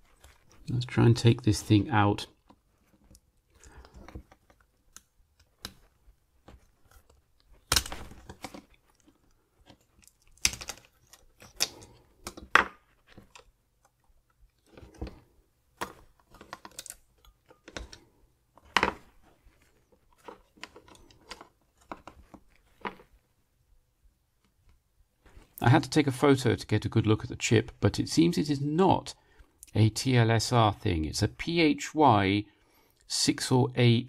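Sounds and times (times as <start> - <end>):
sharp plastic snaps: 9.7 - 14.0.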